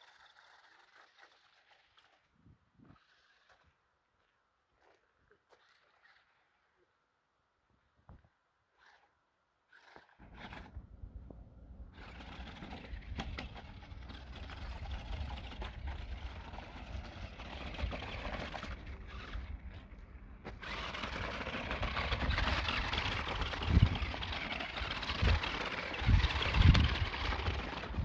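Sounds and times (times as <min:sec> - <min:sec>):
toy truck motor whirring: 0:00.0 - 0:02.3, 0:02.9 - 0:03.7, 0:05.5 - 0:06.5, 0:08.7 - 0:09.1, 0:09.7 - 0:10.8, 0:11.9 - 0:28.0
tyres on loose stones: 0:12.0 - 0:28.0.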